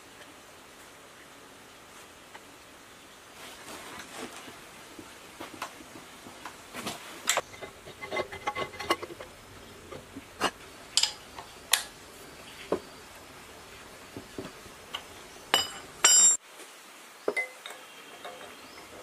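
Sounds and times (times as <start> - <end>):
short ringing clinks: 15.5 - 16.4.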